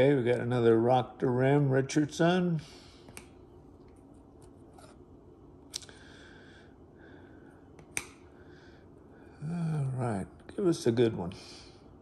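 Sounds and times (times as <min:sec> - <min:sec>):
faint room hum: 0:00.0 - 0:12.0
sharp card snaps: 0:07.8 - 0:08.2.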